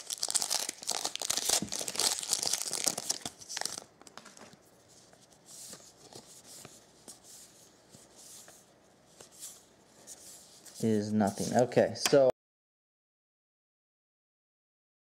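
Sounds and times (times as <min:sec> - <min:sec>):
wrapper tearing and crinkling: 0:00.0 - 0:04.4.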